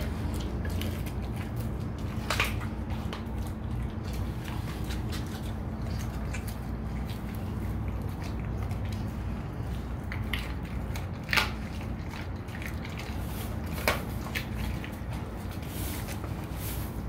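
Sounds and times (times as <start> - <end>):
dog crunching bones: 0.0 - 17.0.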